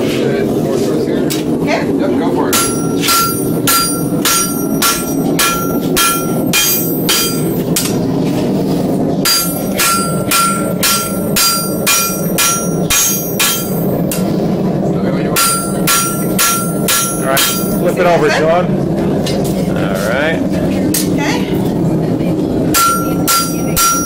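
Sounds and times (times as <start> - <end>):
hammer striking steel on anvil: 2.5 - 8.0, 9.2 - 14.3, 15.4 - 18.0, 22.7 - 24.0.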